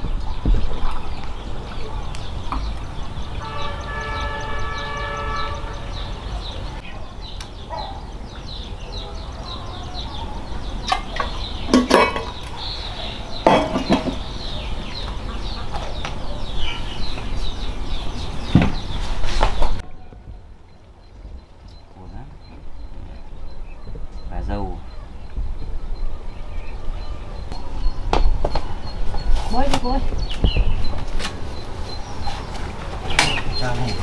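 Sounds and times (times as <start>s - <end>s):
small birds chirping: 0.0s - 34.0s
bottle and pitcher clattering: 11.7s - 12.4s, 13.4s - 14.3s.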